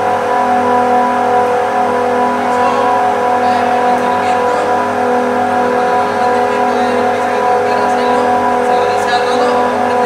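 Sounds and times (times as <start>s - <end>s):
screw compressors droning: 0.0s - 10.0s.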